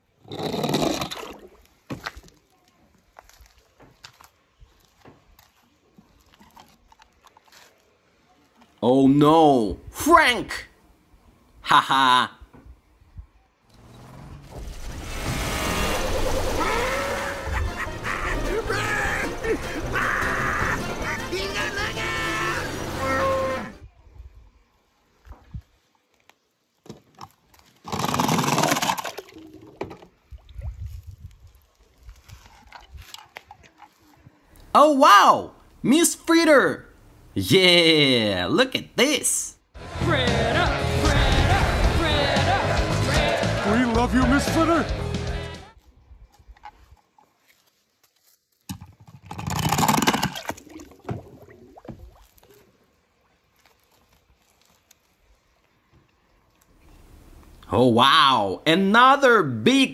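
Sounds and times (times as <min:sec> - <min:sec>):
splash into water: 0:14.4 - 0:17.6, 0:49.7 - 0:52.8
toy car splashing into water: 0:14.6 - 0:17.2, 0:27.8 - 0:30.0, 0:49.3 - 0:51.2.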